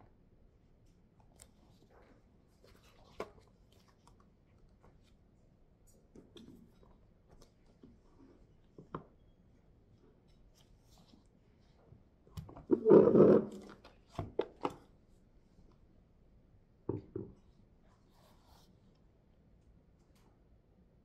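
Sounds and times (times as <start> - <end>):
rustle of pages: 1.3 - 5.2.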